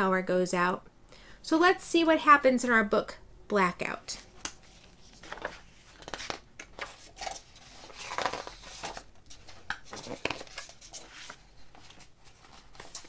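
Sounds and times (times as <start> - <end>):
book pages turning: 4.3 - 13.0.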